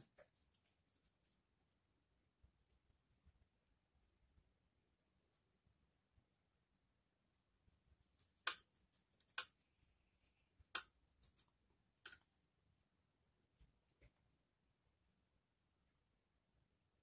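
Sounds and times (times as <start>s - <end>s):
brush clicking against palette: 8.2s - 9.6s.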